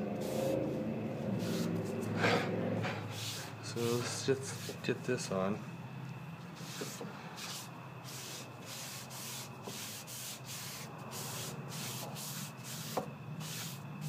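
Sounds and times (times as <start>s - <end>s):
rag rubbing wood: 6.6s - 13.8s.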